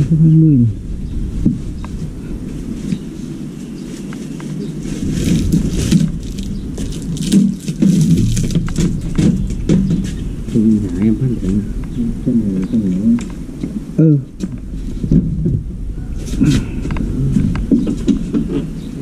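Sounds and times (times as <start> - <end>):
plastic cabinet knocking on concrete: 5.4 - 10.3.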